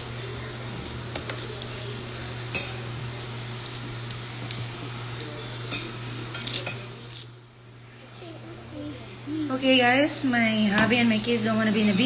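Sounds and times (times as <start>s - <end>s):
utensils clinking on dishes: 2.5s - 2.9s, 5.7s - 7.3s.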